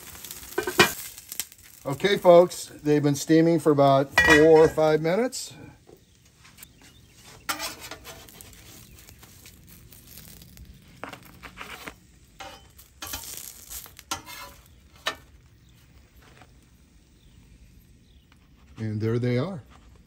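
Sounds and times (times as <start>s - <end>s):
faint sizzle on griddle: 0.0s - 20.0s
spatula scraping griddle: 0.1s - 1.4s, 7.0s - 16.6s.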